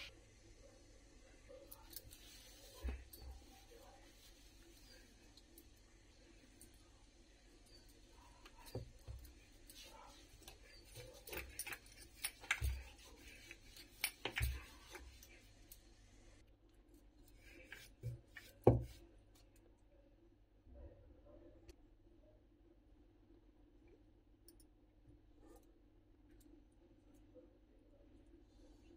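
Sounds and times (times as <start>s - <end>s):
bangles clinking: 7.5s - 15.9s.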